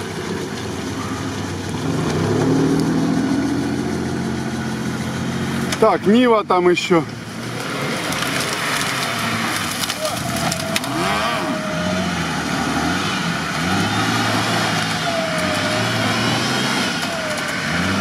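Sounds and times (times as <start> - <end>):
off-road engines revving in mud: 0.0 - 18.0
whine: 9.6 - 18.0.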